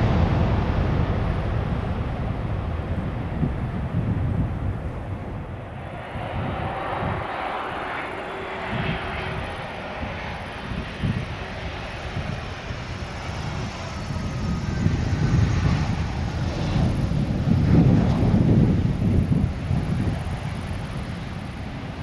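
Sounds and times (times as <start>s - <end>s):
jet engines whining: 0.0s - 22.0s
low jet rumble: 0.0s - 22.0s.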